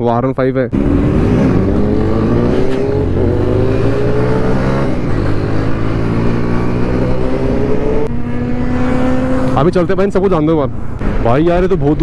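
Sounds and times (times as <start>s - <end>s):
motorcycle engine accelerating: 0.8s - 9.9s.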